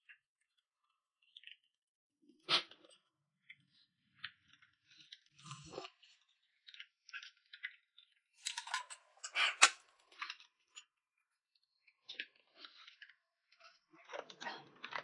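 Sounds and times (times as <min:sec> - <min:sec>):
sipping and mouth noises: 0:05.4 - 0:06.0, 0:08.4 - 0:09.8.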